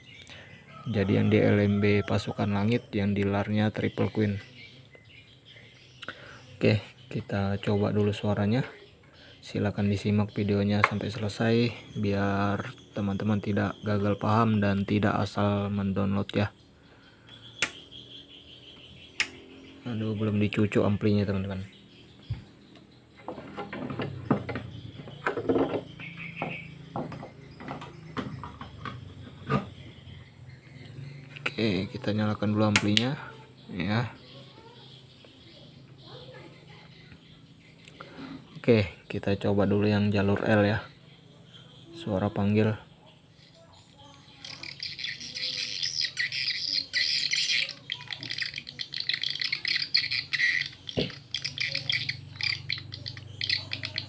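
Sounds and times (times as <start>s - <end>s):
high twittering bird chirps: 0.0s - 54.0s
clicks and knocks of handling: 22.3s - 29.7s.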